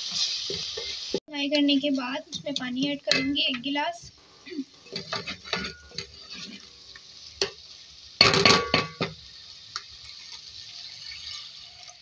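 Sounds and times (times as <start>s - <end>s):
frying sizzle: 0.0s - 12.0s
wooden spoon scraping a metal pot: 4.8s - 6.8s.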